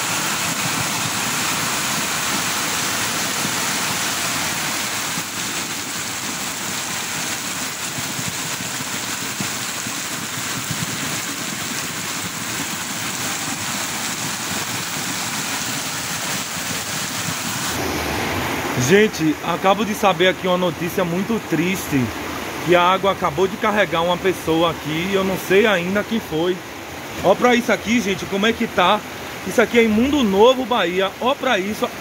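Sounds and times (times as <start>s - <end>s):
floodwater rushing down a street: 0.0s - 32.0s
heavy rain: 0.0s - 32.0s.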